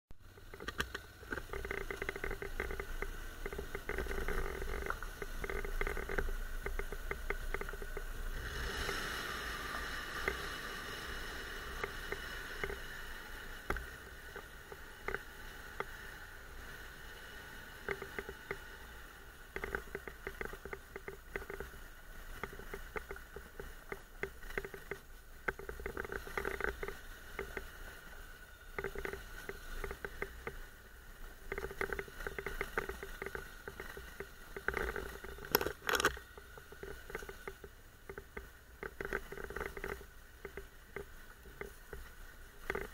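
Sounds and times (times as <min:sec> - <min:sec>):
motorcycle engine rumble: 0:00.2 - 0:42.9
rattling and clicking: 0:00.4 - 0:08.2, 0:31.5 - 0:42.9
hiss: 0:08.4 - 0:13.6.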